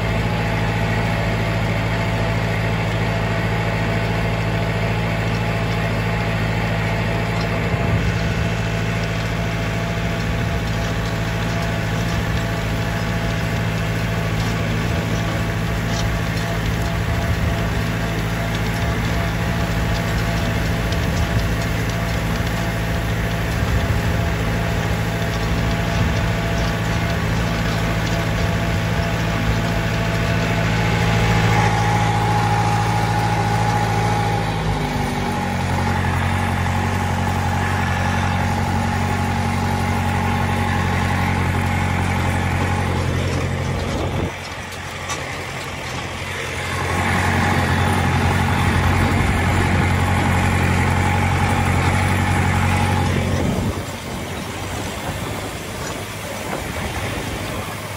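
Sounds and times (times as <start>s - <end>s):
tractor diesel engine running: 0.0s - 57.9s.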